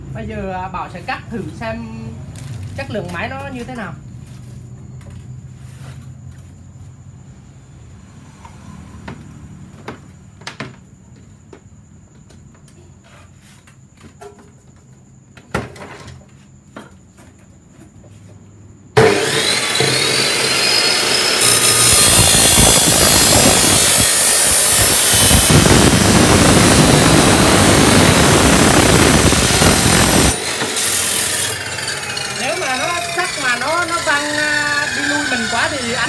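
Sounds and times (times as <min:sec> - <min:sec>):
cut-off saw grinding steel tube: 0:19.0 - 0:36.0.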